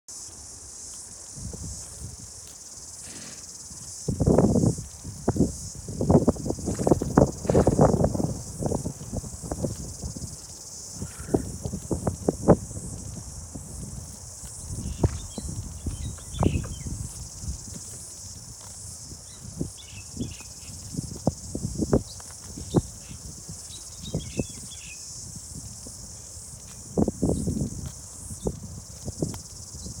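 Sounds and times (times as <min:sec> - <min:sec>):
cicadas buzzing: 0:00.1 - 0:30.0
horse cropping grass: 0:02.9 - 0:03.6, 0:06.3 - 0:08.2.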